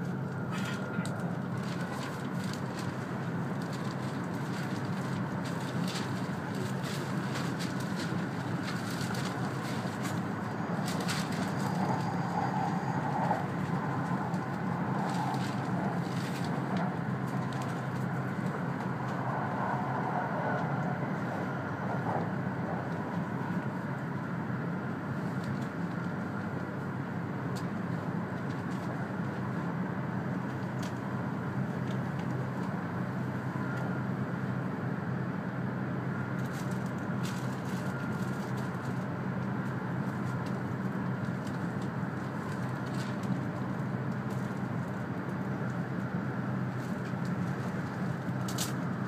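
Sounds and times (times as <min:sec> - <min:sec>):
train cabin rumble: 0:00.0 - 0:34.8.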